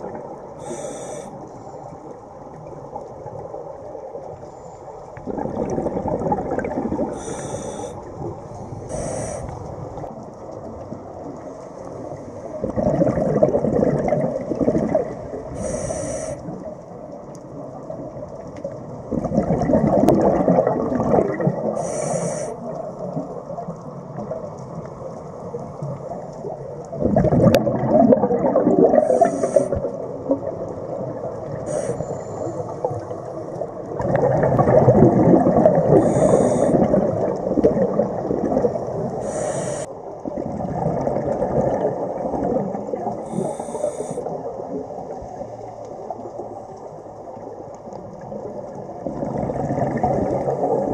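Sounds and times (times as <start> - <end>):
exhaled bubbles underwater: 0.0 - 50.9
regulator hissing: 0.6 - 1.3, 7.2 - 8.0, 8.9 - 9.6, 15.6 - 16.4, 21.8 - 22.6, 31.7 - 32.6, 36.0 - 36.8, 39.2 - 39.9, 43.3 - 44.3.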